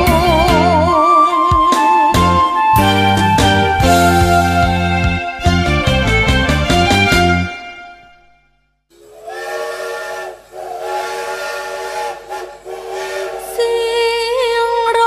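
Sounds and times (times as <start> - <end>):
steam locomotive whistle: 8.9 - 14.1
steam hissing: 9.0 - 13.8.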